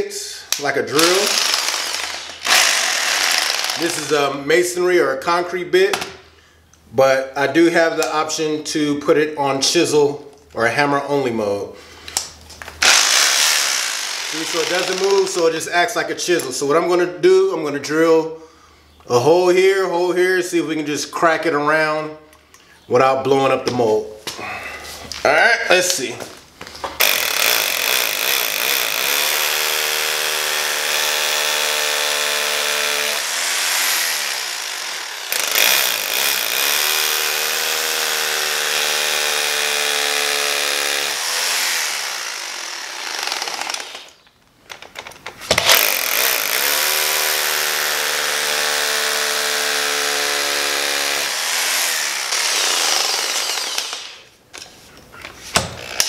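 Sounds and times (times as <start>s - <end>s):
rotary hammer drilling: 1.0s - 4.3s, 12.8s - 15.4s, 27.0s - 44.2s, 45.5s - 54.3s, 55.5s - 56.0s.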